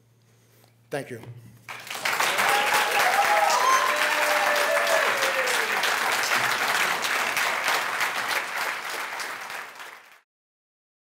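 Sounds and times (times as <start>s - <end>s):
audience applauding: 1.7s - 10.2s.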